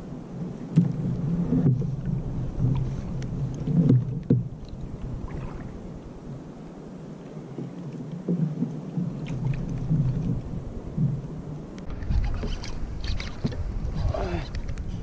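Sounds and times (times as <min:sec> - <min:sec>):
water slapping against kayak hull: 0:00.7 - 0:06.4
sharp knocks on hull: 0:03.8 - 0:04.5.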